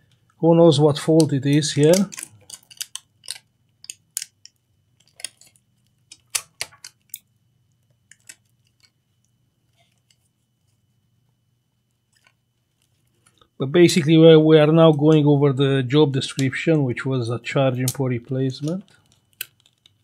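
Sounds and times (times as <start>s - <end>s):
faint low hum: 0.0s - 20.0s.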